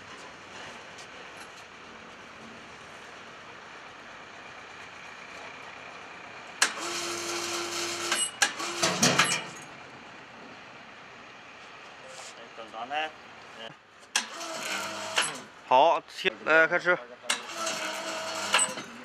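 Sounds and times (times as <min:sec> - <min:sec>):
electric winch motor humming: 0:06.6 - 0:09.6, 0:14.2 - 0:15.5, 0:17.4 - 0:19.0
sharp clunk: 0:15.1 - 0:15.5.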